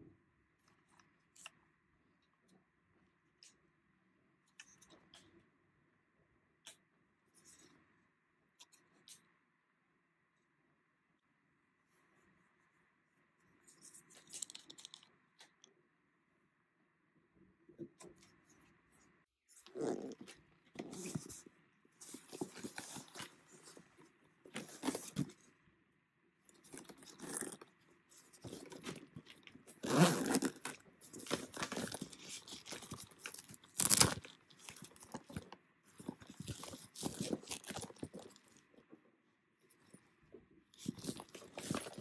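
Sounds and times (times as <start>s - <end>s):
zipper being pulled open: 19.6s - 21.3s, 26.6s - 27.6s, 28.2s - 38.4s, 40.8s - 42.0s
fabric rustling and scraping: 20.8s - 25.4s, 26.6s - 38.5s.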